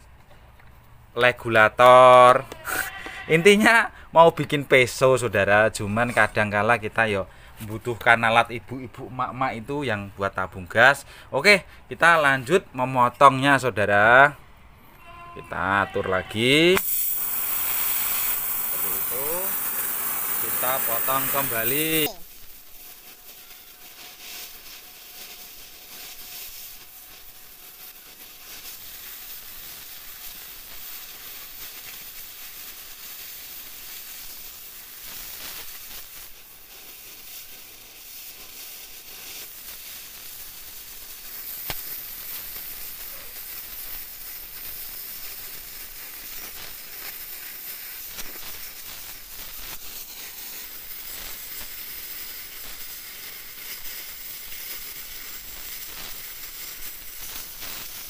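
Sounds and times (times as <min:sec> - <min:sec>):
cutting torch hissing: 0:15.5 - 0:58.0.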